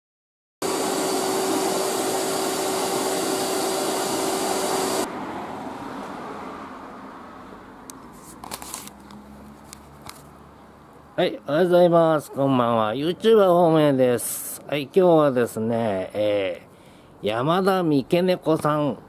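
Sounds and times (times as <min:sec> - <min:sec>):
fan whoosh with hum: 0:00.6 - 0:05.1.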